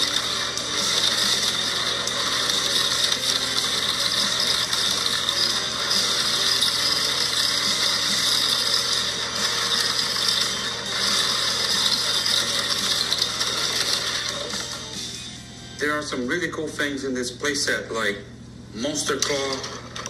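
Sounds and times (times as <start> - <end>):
toy trucks rattling: 0.0 - 15.2, 19.1 - 20.0
toy platform whirring: 0.0 - 15.5, 19.1 - 20.0.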